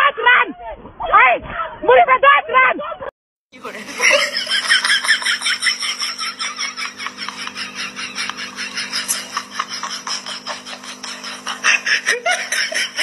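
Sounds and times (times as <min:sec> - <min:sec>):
rapid rhythmic laughter: 0:02.9 - 0:13.0
steady low hum: 0:03.6 - 0:13.0.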